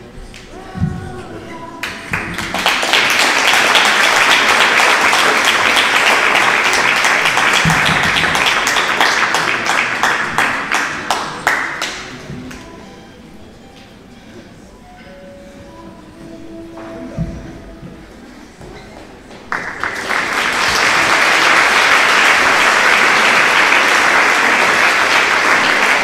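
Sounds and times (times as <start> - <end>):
audience applauding: 1.8 - 12.6, 19.4 - 26.0.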